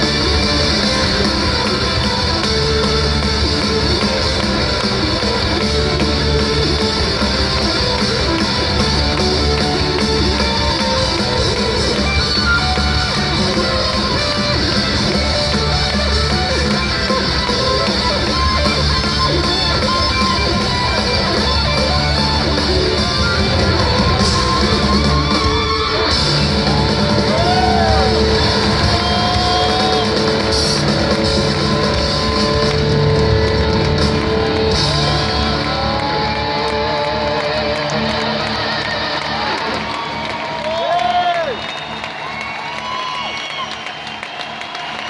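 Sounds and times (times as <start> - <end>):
live rock band in arena: 0.0 - 45.0.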